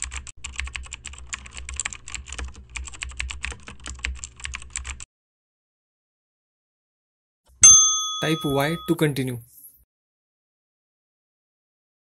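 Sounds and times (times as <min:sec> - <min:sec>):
keyboard typing quickly: 0:00.0 - 0:05.1.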